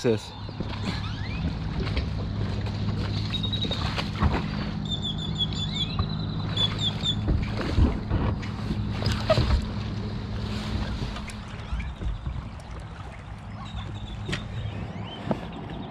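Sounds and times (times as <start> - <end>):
high squeaky chirps: 4.8 - 7.5.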